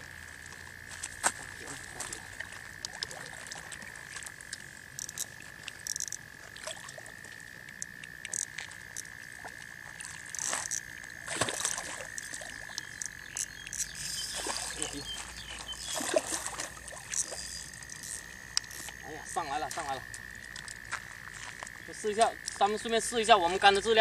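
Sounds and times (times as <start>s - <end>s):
fish splashing at surface: 2.0s - 13.1s.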